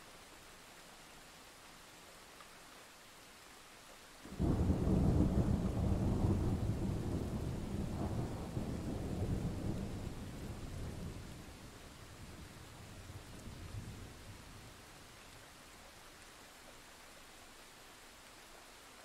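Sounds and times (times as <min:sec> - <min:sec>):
rain hiss: 0:00.0 - 0:19.0
thunder rumbling: 0:04.3 - 0:14.7.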